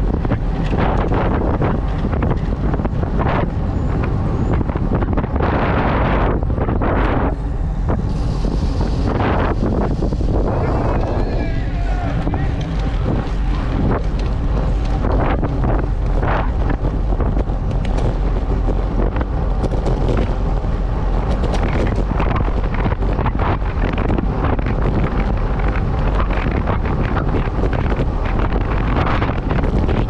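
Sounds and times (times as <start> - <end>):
road and tyre noise: 0.0 - 30.0
wind buffeting microphone: 0.0 - 30.0.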